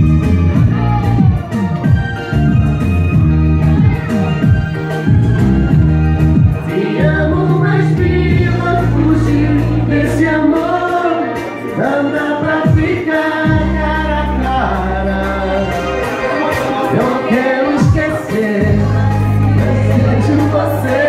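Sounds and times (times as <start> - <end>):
backing track with sustained bass: 0.0 - 21.0
man and woman singing a duet: 6.6 - 21.0.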